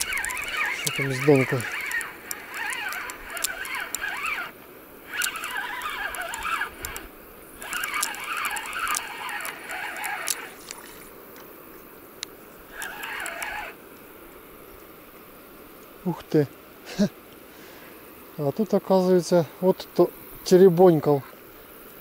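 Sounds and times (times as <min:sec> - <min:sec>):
fishing reel whirring: 0:00.0 - 0:11.2, 0:12.6 - 0:13.8
faint sharp clicks: 0:01.7 - 0:11.5, 0:12.2 - 0:13.6.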